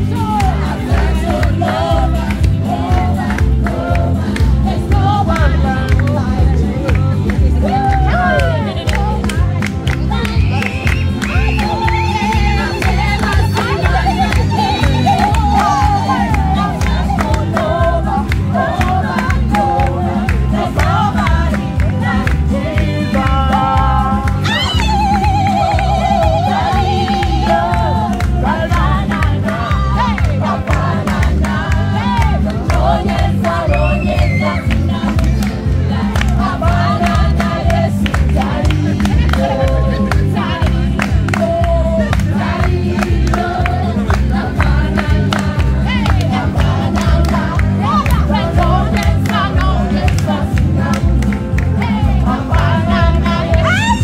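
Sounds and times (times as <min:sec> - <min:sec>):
band with heavy bass: 0:00.0 - 0:54.0
voices singing: 0:00.0 - 0:54.0.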